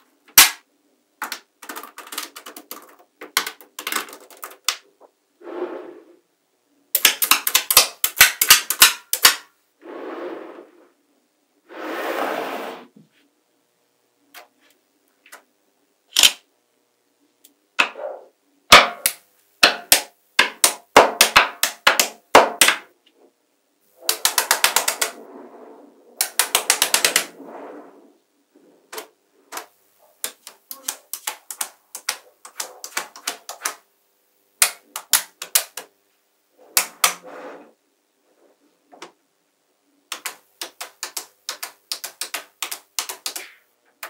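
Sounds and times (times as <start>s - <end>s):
magnetic balls clicking together: 1.2s - 4.8s, 7.0s - 9.5s, 24.0s - 25.2s, 26.2s - 27.3s, 28.9s - 33.8s, 34.6s - 35.9s, 40.1s - 43.6s.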